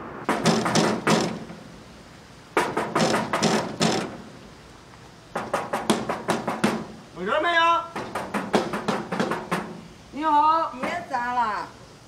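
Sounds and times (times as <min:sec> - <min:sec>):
fists knocking on metal door: 0:00.3 - 0:01.5, 0:02.6 - 0:04.2, 0:05.4 - 0:07.0, 0:08.0 - 0:09.8.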